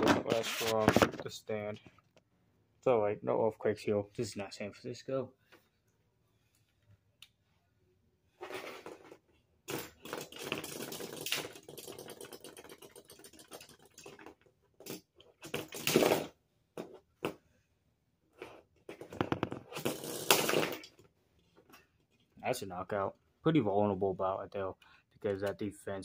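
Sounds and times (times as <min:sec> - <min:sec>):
spinning tops rattling on plastic: 0:09.7 - 0:15.9.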